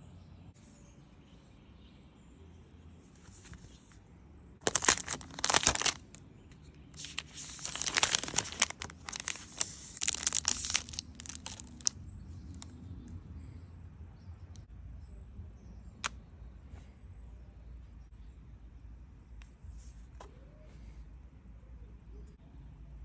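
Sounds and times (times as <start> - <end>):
plastic wrapper crinkling: 4.6 - 6.2, 7.0 - 12.7.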